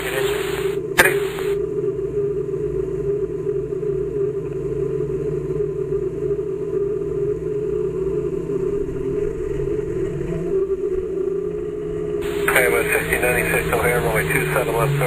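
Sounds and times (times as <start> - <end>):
steady droning hum: 0.0 - 15.0
low rumble: 7.6 - 15.0.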